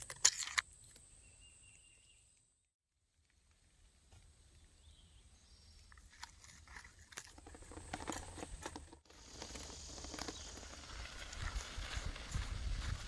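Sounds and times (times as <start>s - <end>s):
crunching and crackling: 6.1s - 13.0s.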